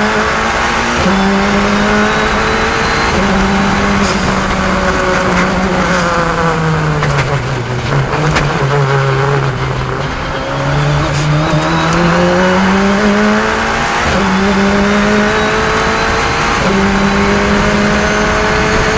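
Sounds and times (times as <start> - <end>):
race car engine shifting gears: 0.0 - 18.9.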